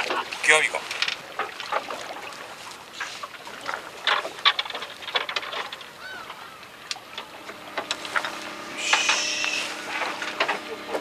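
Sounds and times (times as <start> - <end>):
tackle crinkling and clicking: 4.0 - 9.2
honking bird call: 8.7 - 9.9.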